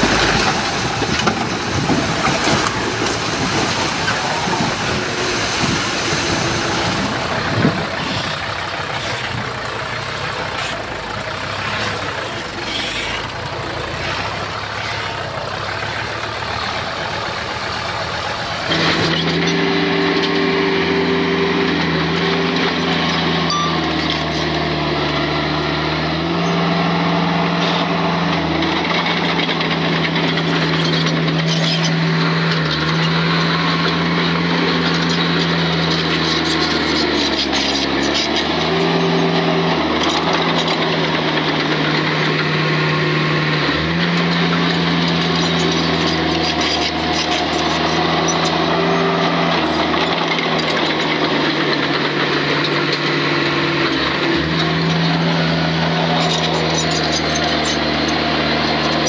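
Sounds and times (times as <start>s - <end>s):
knocks and rattles: 0.0s - 9.8s
bulldozer diesel engine running: 0.0s - 59.0s.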